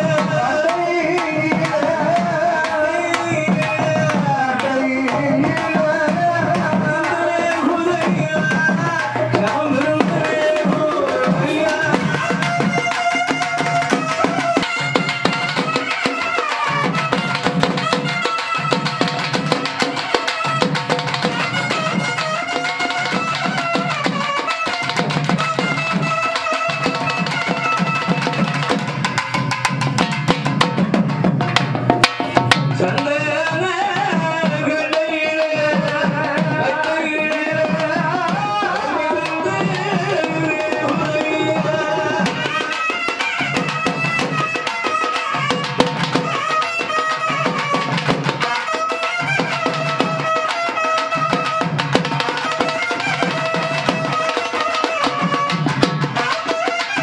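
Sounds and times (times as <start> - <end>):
drum ensemble fast rhythm: 0.0 - 57.0
wavering melody line: 38.7 - 43.1.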